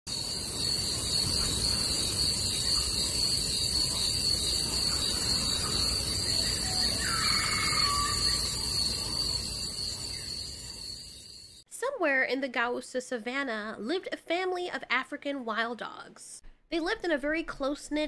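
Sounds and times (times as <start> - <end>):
insects chirping: 0.1 - 11.6
bird chirping: 1.2 - 11.5.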